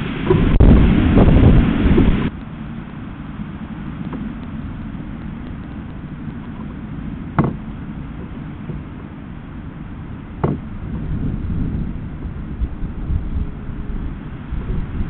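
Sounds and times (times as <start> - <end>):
wind buffeting microphone: 0.0 - 15.0
sharp knock on wooden box: 7.4 - 7.6, 10.4 - 10.7.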